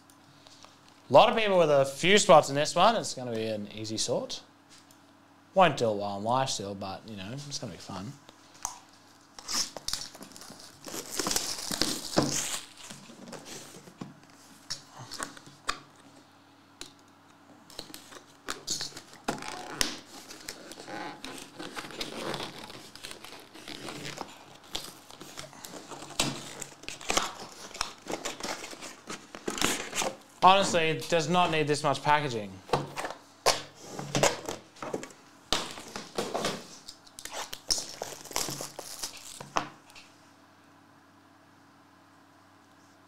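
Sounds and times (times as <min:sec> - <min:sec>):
shrink wrap tearing and crinkling: 0:09.4 - 0:13.8, 0:17.7 - 0:30.7, 0:35.6 - 0:39.6.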